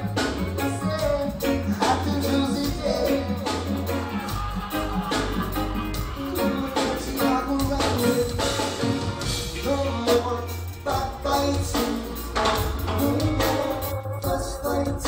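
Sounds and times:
live reggae band playing: 0.0s - 15.0s
person singing: 0.0s - 15.0s.

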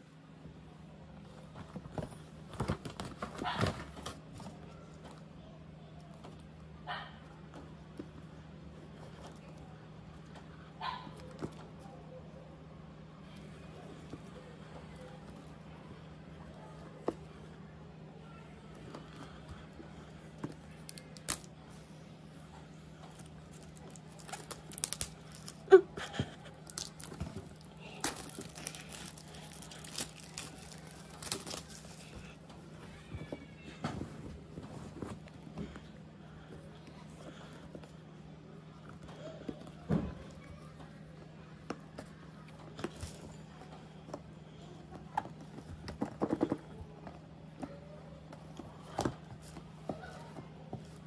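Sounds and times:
faint steady hum: 0.0s - 51.0s
cardboard tear strips ripping: 20.9s - 21.5s, 23.6s - 25.7s, 26.6s - 32.1s
plastic wrap crinkling: 23.1s - 25.8s, 26.4s - 32.4s.

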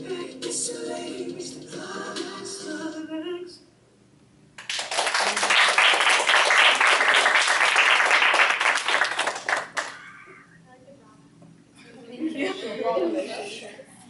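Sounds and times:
person singing: 0.0s - 3.6s
audience applause: 4.6s - 10.1s.

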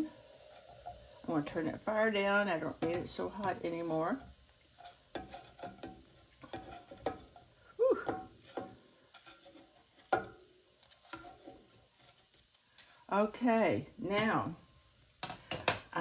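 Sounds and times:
spatula scraping a skillet: 0.0s - 13.2s.

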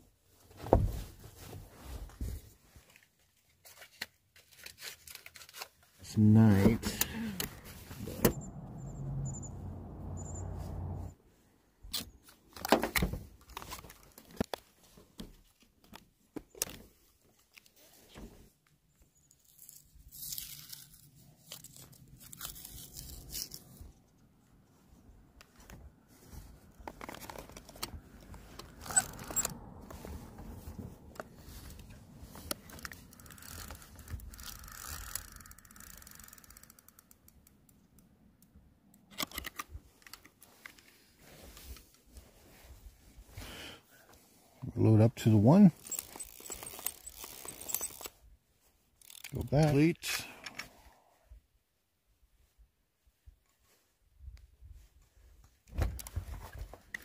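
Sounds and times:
rustling and scraping: 0.3s - 11.2s, 12.0s - 37.2s, 39.2s - 44.6s, 45.7s - 49.5s, 54.7s - 57.0s
gear handling clicks and knocks: 2.0s - 8.4s, 11.8s - 24.2s, 25.4s - 42.2s, 45.7s - 48.2s, 49.0s - 50.7s, 55.4s - 57.0s.

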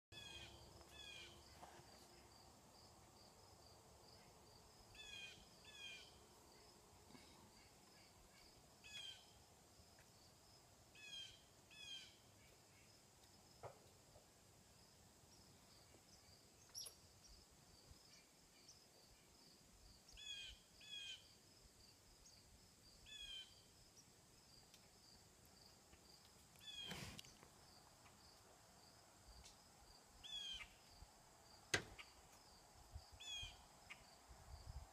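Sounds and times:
bird calling in short calls: 26.6s - 27.2s.

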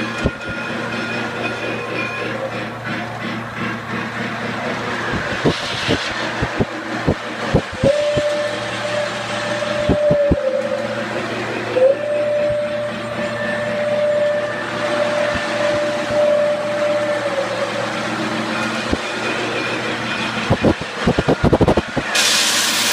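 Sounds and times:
electronic engine rumble: 1.4s - 22.9s.

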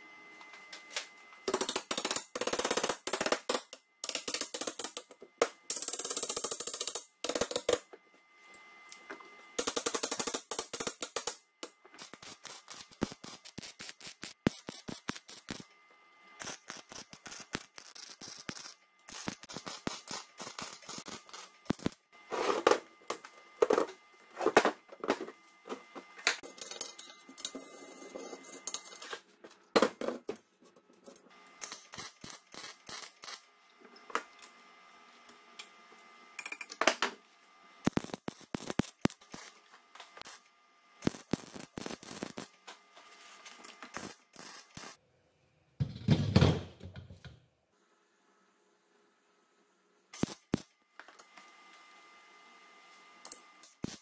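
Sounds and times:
arc welding crackling: 1.4s - 7.9s, 9.6s - 22.4s, 31.5s - 33.5s, 37.8s - 45.0s, 50.1s - 51.4s, 53.2s - 54.0s.

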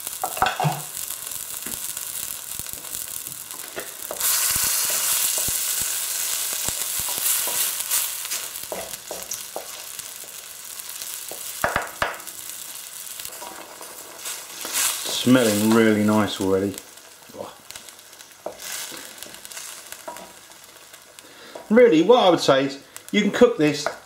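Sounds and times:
paste sizzling in hot oil: 0.0s - 24.0s.

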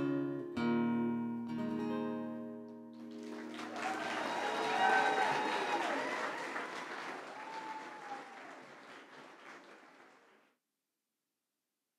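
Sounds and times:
audience applauding: 3.0s - 10.5s.

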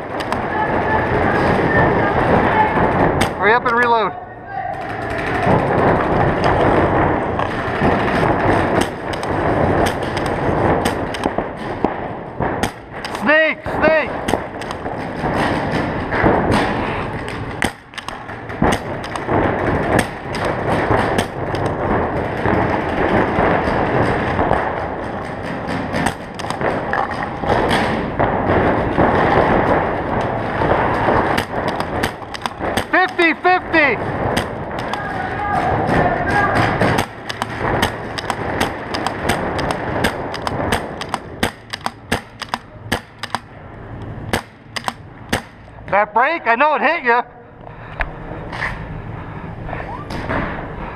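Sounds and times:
paintball markers firing: 4.7s - 43.5s, 44.2s - 45.7s
paintballs thudding on bunkers: 4.8s - 45.8s
arena din: 30.8s - 43.5s.

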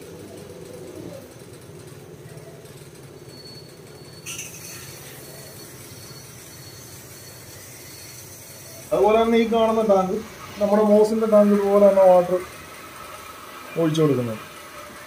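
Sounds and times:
steady low hum: 0.0s - 14.4s.

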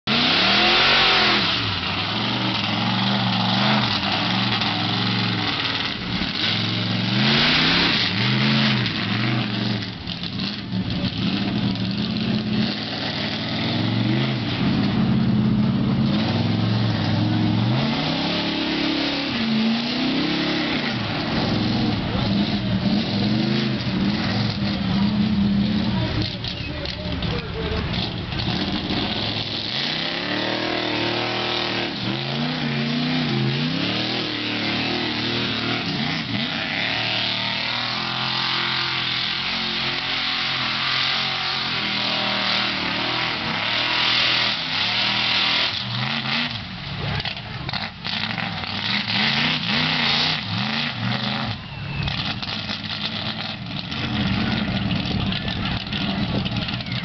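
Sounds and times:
tires churning through mud: 0.0s - 57.0s
truck engine revving hard: 0.0s - 57.0s.

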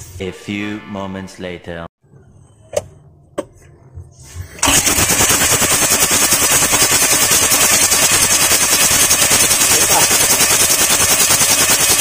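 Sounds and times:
diesel engine cranking: 4.6s - 12.0s.

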